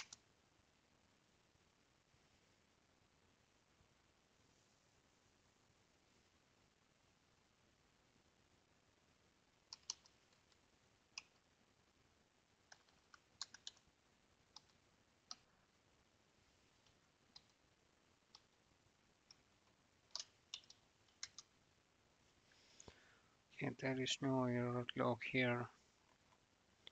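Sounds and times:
computer keyboard keys clicking: 9.7s - 10.6s, 12.7s - 13.8s, 20.1s - 21.5s.

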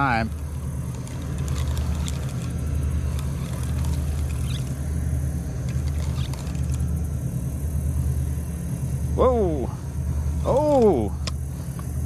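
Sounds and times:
boat engine drone: 0.0s - 12.0s.

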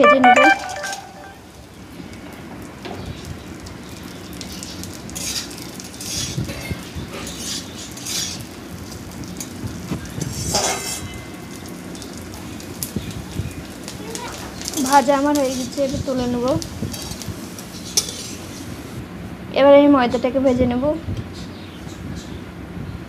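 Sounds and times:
low frying sizzle: 0.0s - 22.9s
metal spatula scraping wok: 4.6s - 8.5s, 10.2s - 11.2s, 16.9s - 18.7s.

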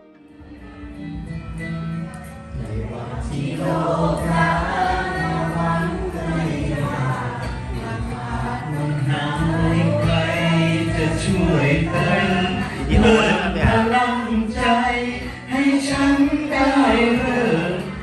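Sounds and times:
backing music: 0.0s - 18.0s
voices singing pop song: 2.5s - 18.0s.

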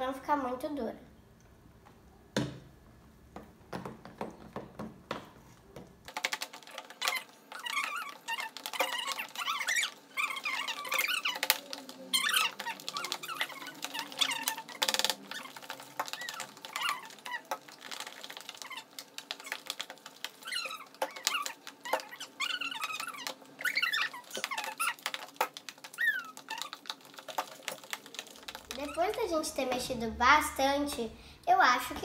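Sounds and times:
slime squelching: 3.5s - 32.0s
spoons clicking against plastic tubs: 6.1s - 29.2s.

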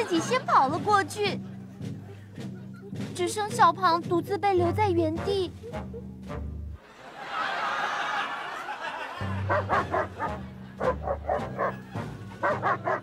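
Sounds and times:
bouncy background music: 0.0s - 6.8s, 8.9s - 13.0s
dog barking sharply: 9.5s - 11.8s.

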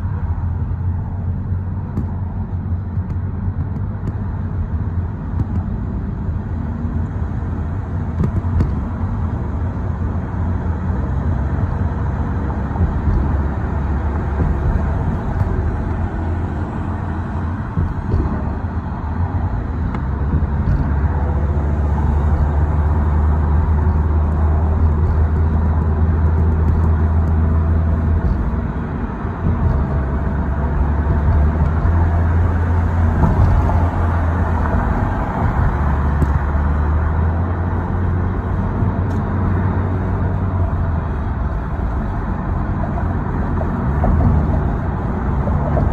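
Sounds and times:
car road and engine rumble: 0.0s - 45.9s.

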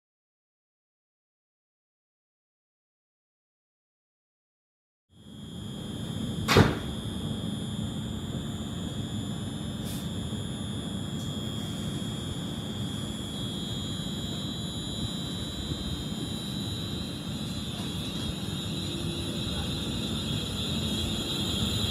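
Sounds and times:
train electrical whine: 5.2s - 21.9s
sharp knock: 6.5s - 6.9s.

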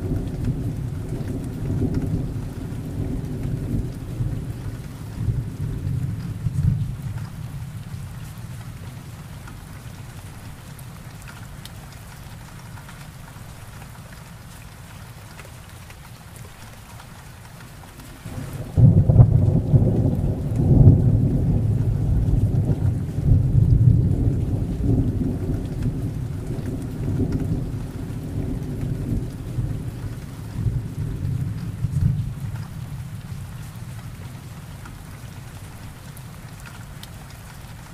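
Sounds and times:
thunder rumbling: 0.0s - 8.0s, 18.2s - 34.5s
rain hissing: 0.0s - 37.9s.

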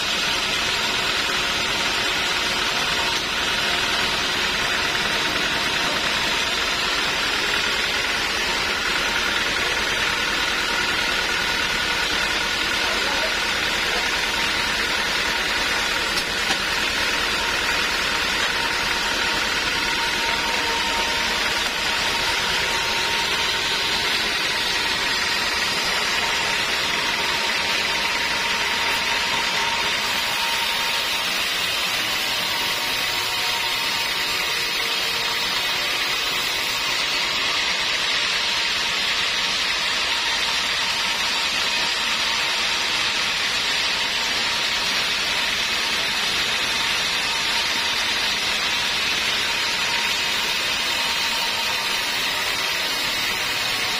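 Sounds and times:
machine hum: 0.0s - 53.9s
band saw ripping through log: 0.1s - 38.0s.

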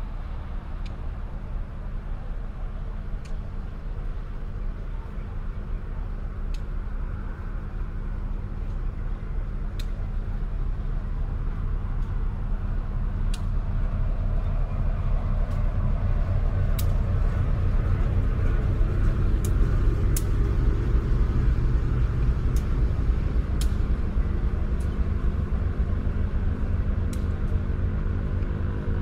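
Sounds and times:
diesel locomotive engine rumble: 0.0s - 29.0s
train coaches rolling past: 0.0s - 29.0s
wheels clicking over rail joints: 15.4s - 27.7s.

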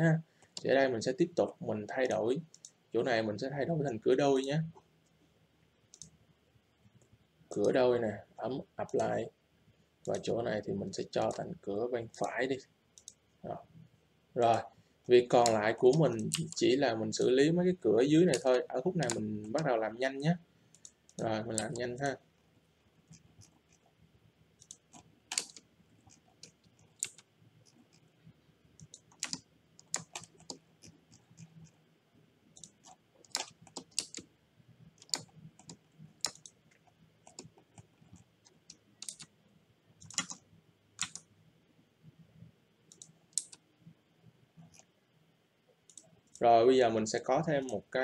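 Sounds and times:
mouse buttons clicking: 5.9s - 6.2s, 13.0s - 13.2s, 18.3s - 19.6s, 24.6s - 28.0s, 35.0s - 36.6s, 37.2s - 39.3s, 42.9s - 43.6s
keyboard keys clicking: 24.6s - 27.2s, 28.8s - 30.6s, 32.5s - 34.3s, 35.0s - 36.6s, 39.0s - 39.3s, 40.0s - 40.4s, 41.0s - 41.2s.

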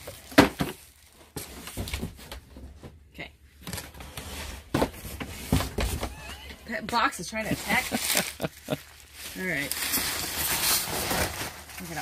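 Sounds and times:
plastic sheeting crinkling: 7.2s - 12.0s.

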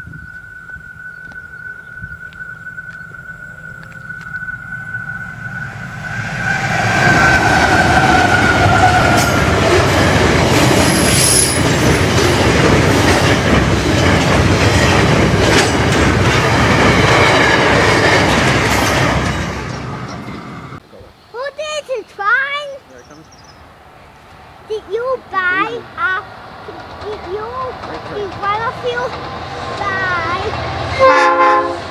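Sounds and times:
high squeal: 0.0s - 9.6s, 10.8s - 11.8s
train wheels rumbling on rails: 3.0s - 20.8s, 24.3s - 31.9s
wheels clicking over rail joints: 7.5s - 20.4s, 24.8s - 30.8s.

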